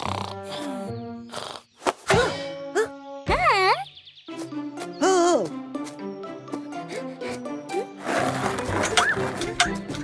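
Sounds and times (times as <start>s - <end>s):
light cartoon music: 0.0s - 10.0s
cartoon voice wavering in pitch: 2.8s - 3.9s.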